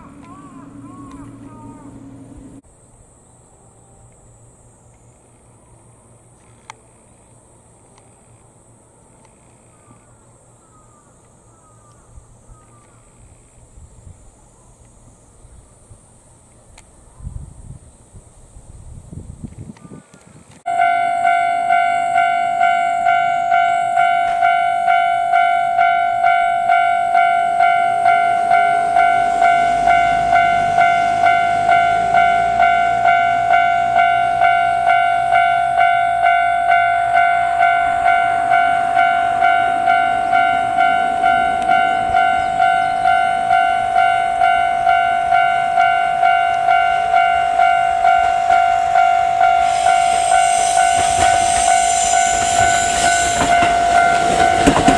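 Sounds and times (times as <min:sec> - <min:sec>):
train rolling past: 0:00.0 - 0:10.0, 0:20.6 - 0:54.9
level crossing warning bell: 0:20.7 - 0:54.9.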